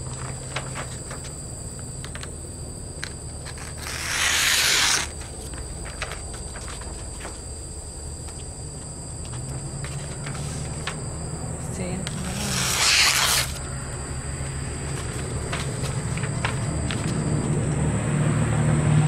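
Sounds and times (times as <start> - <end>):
blade slicing through paper: 3.6 - 5.2, 12.1 - 13.6.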